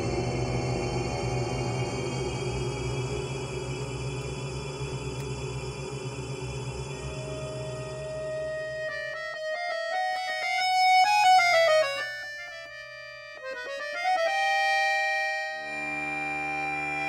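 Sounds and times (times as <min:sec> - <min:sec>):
accordion playing: 0:06.9 - 0:17.0.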